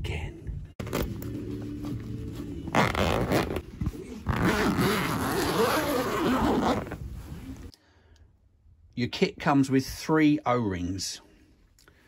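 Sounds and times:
zip being pulled open: 0:02.7 - 0:03.6, 0:04.2 - 0:07.7.

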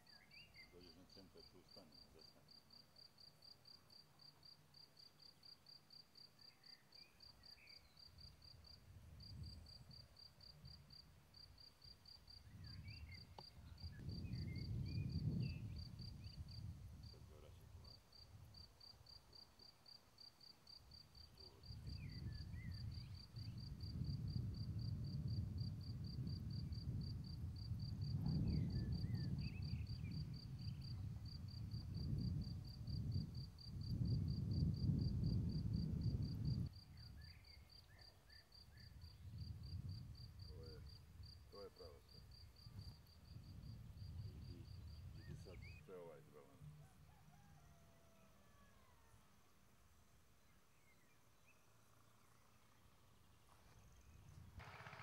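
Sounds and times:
cricket chirping: 0:00.0 - 0:55.0
wind buffeting microphone: 0:12.4 - 0:17.4, 0:21.7 - 0:37.3, 0:38.9 - 0:41.4, 0:42.4 - 0:45.8.

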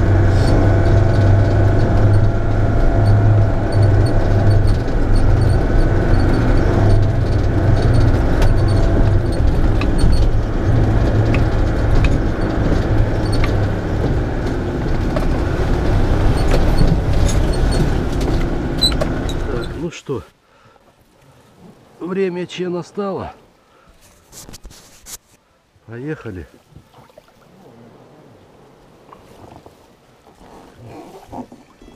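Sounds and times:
knocks and rattles: 0:00.0 - 0:19.8
vehicle engine humming: 0:00.0 - 0:20.0.

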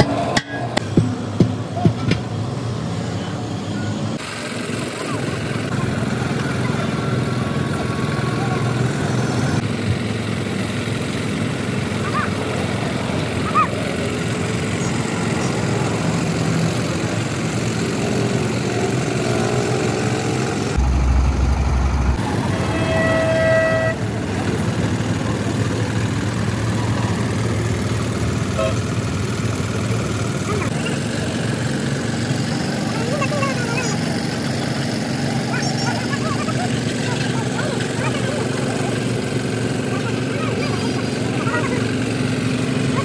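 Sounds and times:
traffic and engine noise: 0:00.0 - 0:43.0
vehicle horn: 0:22.1 - 0:24.1, 0:28.6 - 0:29.0.

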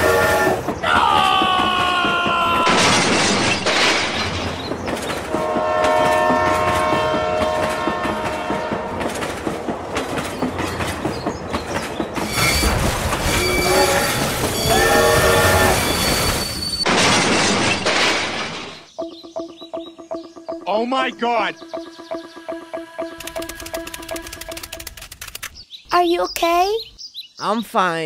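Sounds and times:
train horn: 0:00.0 - 0:00.7, 0:05.3 - 0:09.2, 0:13.3 - 0:16.0
train wheels clacking: 0:00.0 - 0:16.9.

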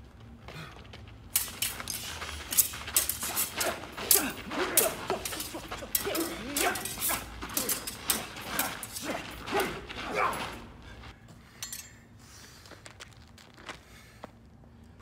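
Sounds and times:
fencers grunting: 0:00.5 - 0:11.1
sword blades clashing: 0:01.4 - 0:10.8.

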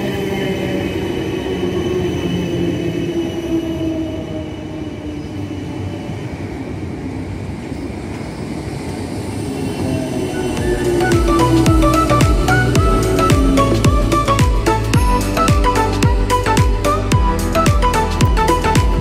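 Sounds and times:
train wheels rumbling on rail: 0:00.0 - 0:16.9
train motor tones: 0:09.8 - 0:15.0.

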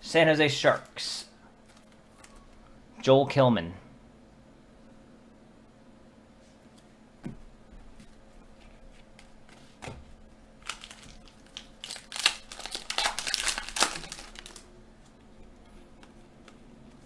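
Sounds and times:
foil wrapper crinkling: 0:10.6 - 0:14.7.

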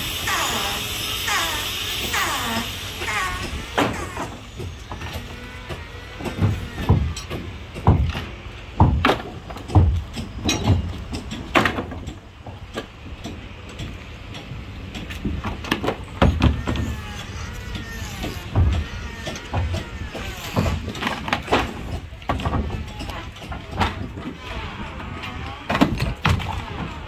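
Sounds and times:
hand tools striking wood: 0:03.0 - 0:16.9.

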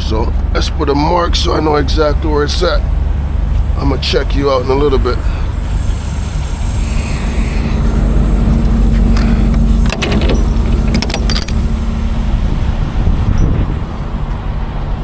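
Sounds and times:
diesel engine idling: 0:00.0 - 0:15.0
metal door lock clanks: 0:09.8 - 0:11.6.

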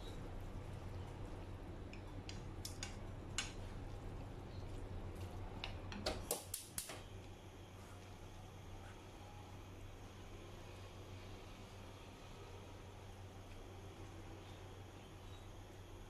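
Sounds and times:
steady low hum: 0:00.0 - 0:16.0
chopsticks tapping a frying pan: 0:01.9 - 0:03.6.

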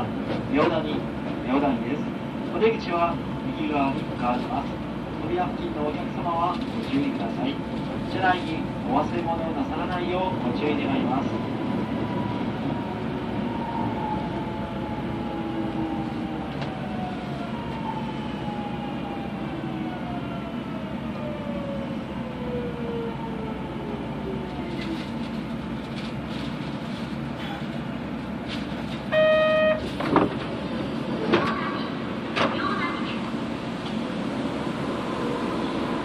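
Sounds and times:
train running noise: 0:00.0 - 0:22.0, 0:23.8 - 0:36.0
train traction inverter whining: 0:07.3 - 0:36.0
short buzzer tone: 0:29.1 - 0:29.8.

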